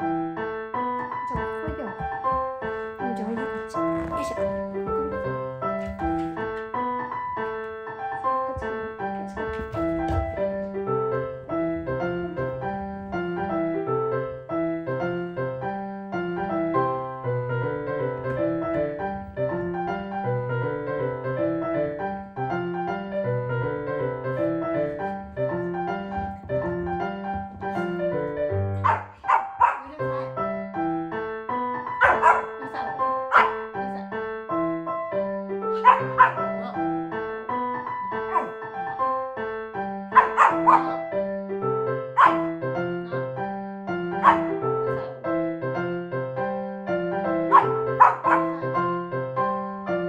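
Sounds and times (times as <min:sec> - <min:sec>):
piano music: 0:00.0 - 0:50.0
dog barking: 0:28.8 - 0:30.3, 0:32.0 - 0:33.7, 0:35.8 - 0:36.6, 0:38.3 - 0:38.6, 0:40.2 - 0:41.1, 0:42.2 - 0:42.6, 0:44.2 - 0:44.6, 0:47.5 - 0:48.6.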